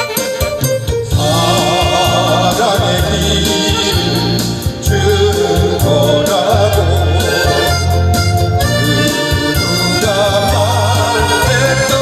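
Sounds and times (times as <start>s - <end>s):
saxophone playing: 0.0s - 4.8s, 7.2s - 12.0s
backing track with bass beat: 0.0s - 12.0s
man singing: 1.0s - 12.0s.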